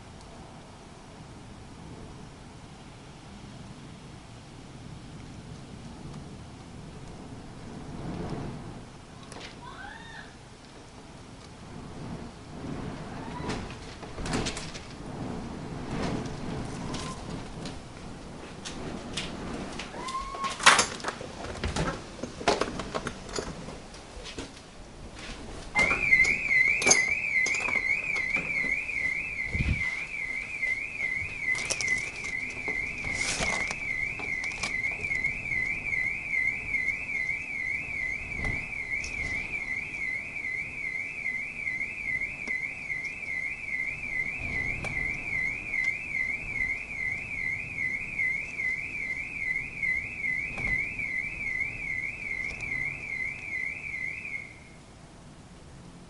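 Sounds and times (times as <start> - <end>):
electronic alarm siren warbling: 25.8 - 54.8.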